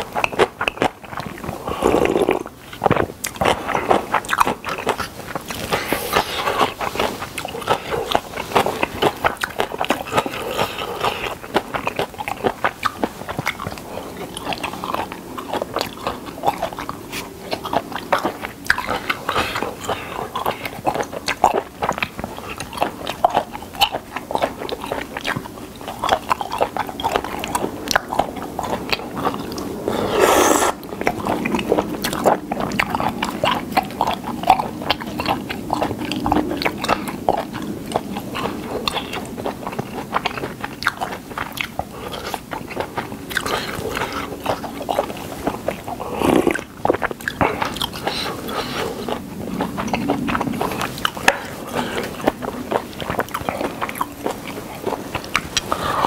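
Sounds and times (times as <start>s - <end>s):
wet chewing mouth sounds: 0.0s - 56.0s.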